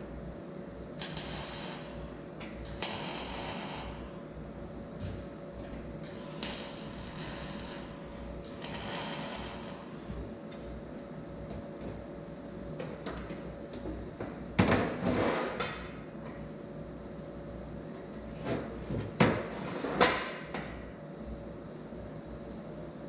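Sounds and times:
steady hum: 0:00.0 - 0:19.5
arc welding crackling sizzle: 0:00.8 - 0:04.3, 0:06.0 - 0:10.3.

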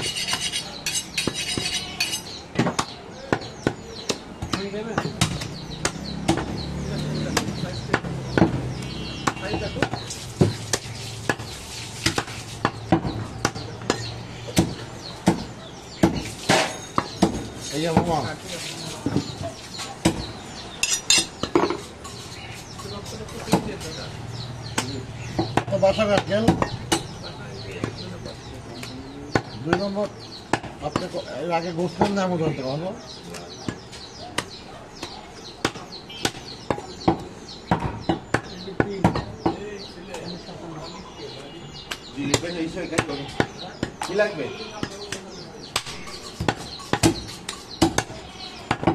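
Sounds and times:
cleaver chopping on wooden block: 0:00.0 - 0:18.2, 0:44.8 - 0:48.9.

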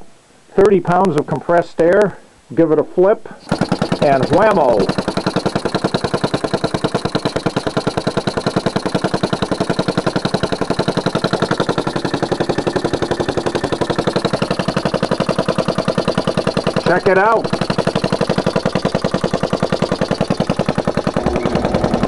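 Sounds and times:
air engine puffing: 0:03.3 - 0:22.0.

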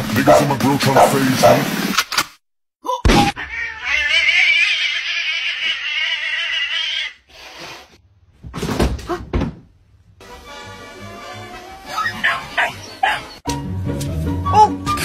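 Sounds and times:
cat yowling: 0:03.3 - 0:07.2.

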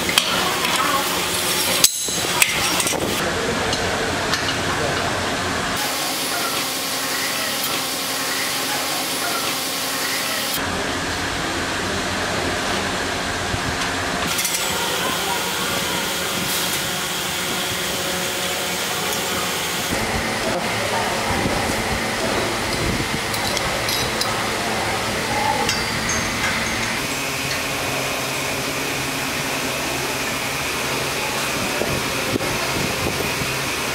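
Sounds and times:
faint voices: 0:00.0 - 0:33.9
machine hum and hiss: 0:00.0 - 0:33.9.

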